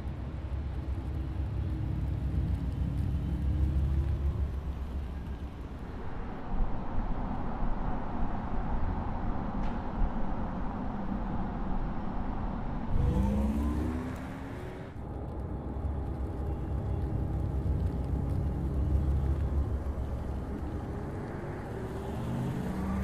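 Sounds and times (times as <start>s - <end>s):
tyre and road noise: 0.0s - 6.2s, 12.8s - 23.0s
electric car hum: 12.9s - 23.0s.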